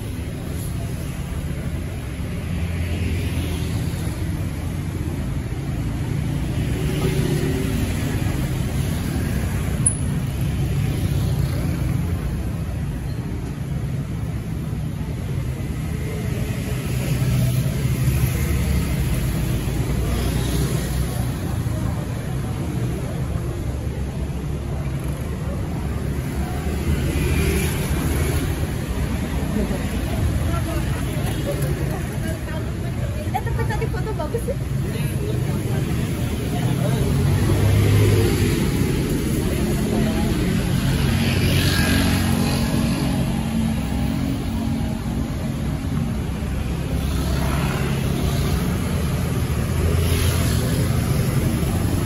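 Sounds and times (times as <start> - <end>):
vehicles passing with low rumble: 0.0 - 52.0.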